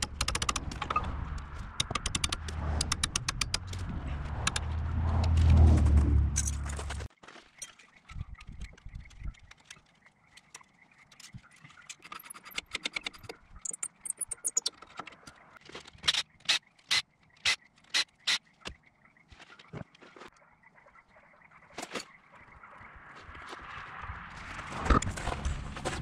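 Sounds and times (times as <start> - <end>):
metallic clicks and taps of hand tools: 1.8 - 3.8.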